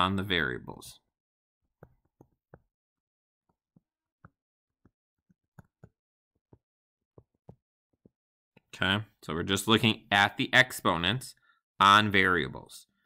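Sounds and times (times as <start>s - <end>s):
stylus tapping on writing tablet: 1.8s - 2.8s, 3.5s - 8.2s.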